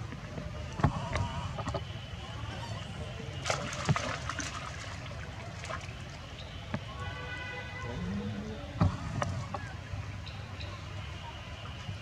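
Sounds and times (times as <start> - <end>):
monkeys splashing in water: 2.4 - 6.8.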